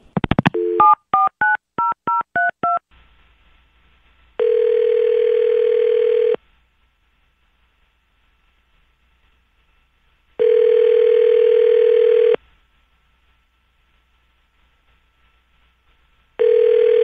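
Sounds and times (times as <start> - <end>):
faint line hiss: 2.9 - 17.0
phone ringback tone: 4.4 - 6.4, 10.4 - 12.4, 16.4 - 17.0.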